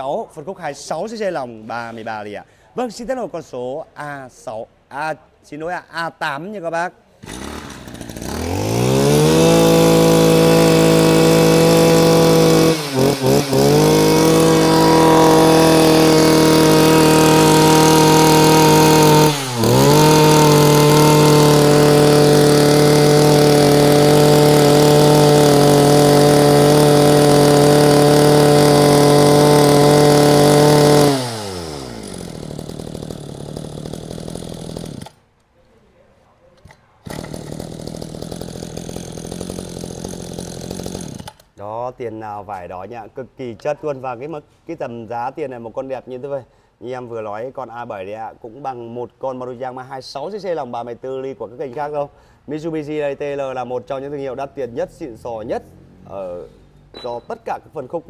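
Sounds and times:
brush cutter engine revving: 0:07.2 - 0:35.2, 0:36.6 - 0:41.5.

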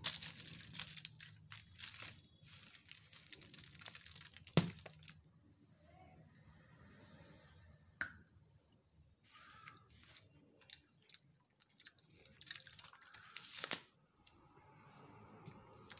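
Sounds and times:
foil wrapper crinkling: 0:00.0 - 0:05.2, 0:12.2 - 0:13.9.

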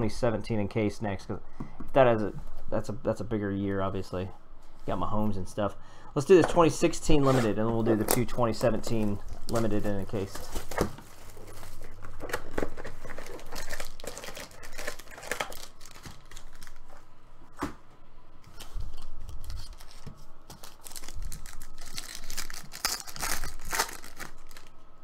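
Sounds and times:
wrappers rustling and crinkling: 0:07.2 - 0:17.1, 0:18.5 - 0:24.8
wrapper tearing: 0:09.4 - 0:17.0, 0:18.6 - 0:24.8.

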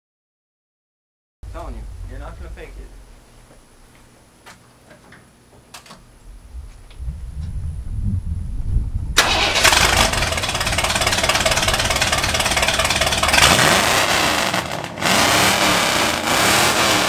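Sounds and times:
loud engine starting and revving: 0:09.2 - 0:17.0.

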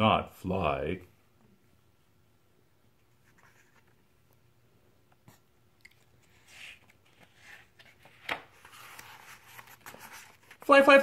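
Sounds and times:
paper page turning: 0:06.2 - 0:11.0.

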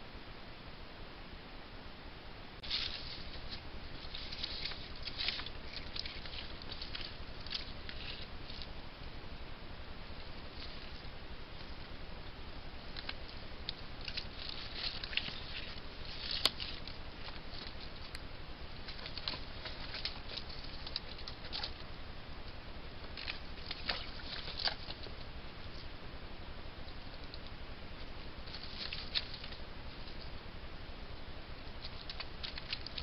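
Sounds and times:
microphone hiss: 0:00.0 - 0:33.0
animal rustling among sticks: 0:02.6 - 0:09.0, 0:10.1 - 0:22.0, 0:23.0 - 0:26.0, 0:26.8 - 0:30.4, 0:31.5 - 0:33.0.

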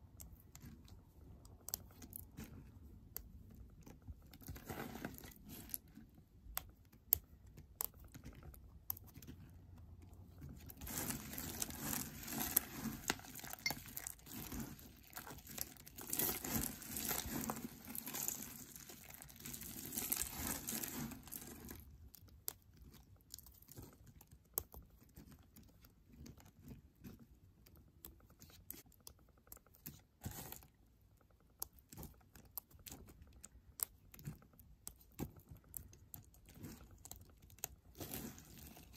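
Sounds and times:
hands crunching dry soap flakes: 0:10.7 - 0:24.4.

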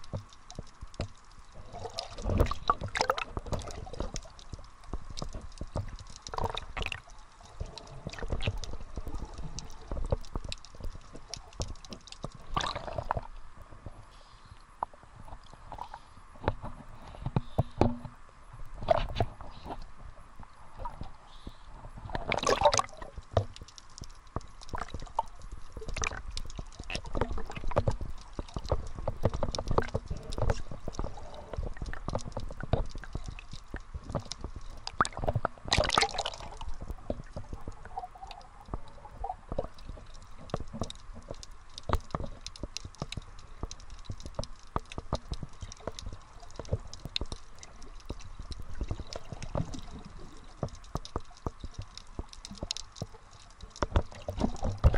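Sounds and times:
water sloshing and bubbling: 0:00.0 - 0:54.9
water splashes: 0:00.0 - 0:54.9
small clicks: 0:18.9 - 0:54.9.

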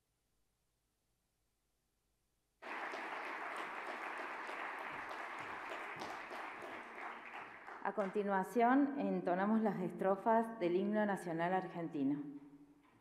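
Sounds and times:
audience applauding: 0:02.6 - 0:08.2.

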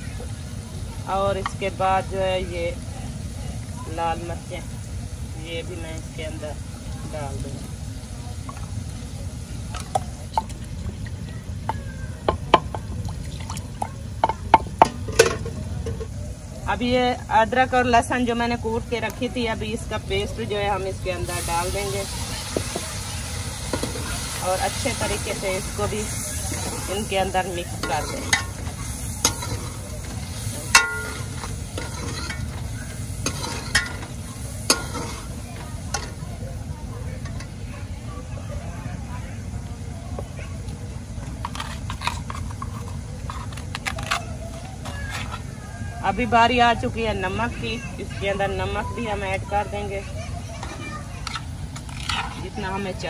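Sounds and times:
food frying sizzle: 0:00.0 - 0:38.1
spoon clanking against pot: 0:26.5 - 0:36.2.

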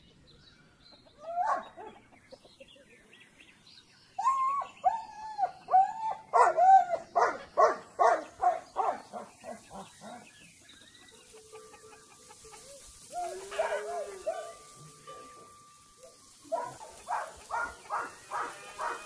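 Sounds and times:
animal calling: 0:11.2 - 0:14.8, 0:16.0 - 0:19.0.

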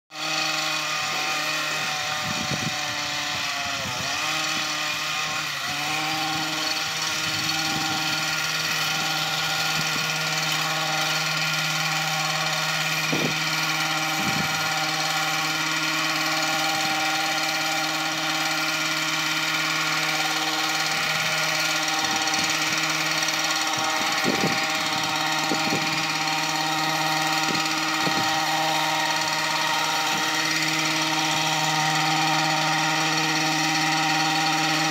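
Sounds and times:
hedge trimmer engine running: 0:00.1 - 0:34.9.

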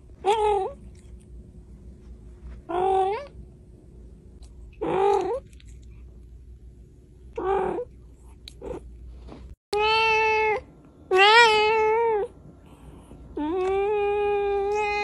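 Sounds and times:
cat meowing: 0:13.4 - 0:15.0.

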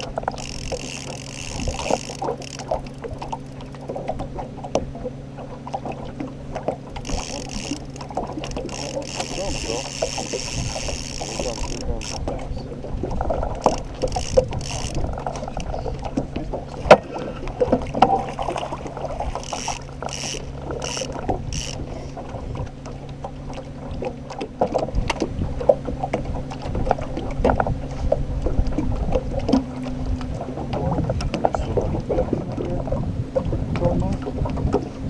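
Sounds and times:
fishing reel clicking: 0:00.0 - 0:03.8, 0:07.0 - 0:12.4, 0:13.6 - 0:15.8, 0:19.4 - 0:21.9
boat motor hum: 0:00.0 - 0:35.0.

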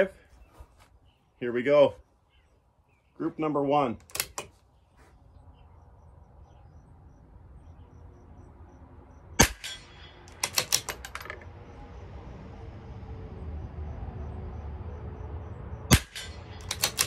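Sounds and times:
rifle bolt clicking: 0:04.0 - 0:04.5, 0:16.6 - 0:17.0
rifle shot: 0:09.4 - 0:11.2, 0:15.9 - 0:17.0.

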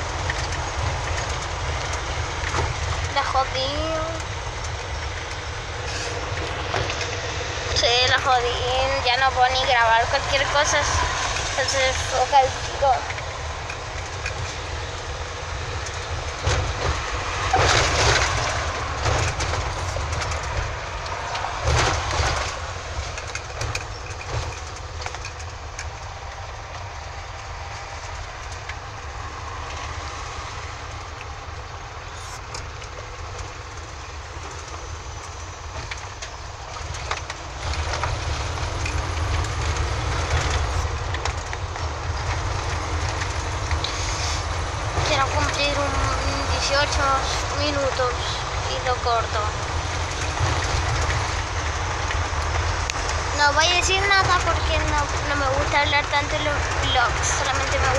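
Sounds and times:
car road noise rumble: 0:00.0 - 0:57.9.

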